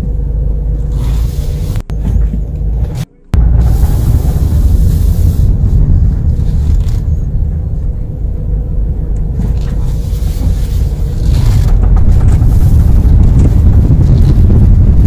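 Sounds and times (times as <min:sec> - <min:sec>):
road and tyre rumble: 0:00.0 - 0:15.0.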